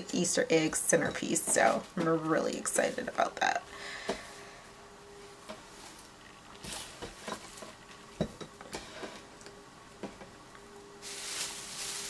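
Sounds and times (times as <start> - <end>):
plastic grass crinkling: 5.7 - 7.9, 11.0 - 12.0.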